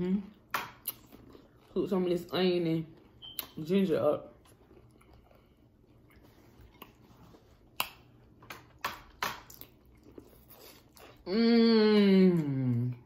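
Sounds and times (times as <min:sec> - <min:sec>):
person chewing food: 0:00.4 - 0:01.9, 0:04.2 - 0:11.3.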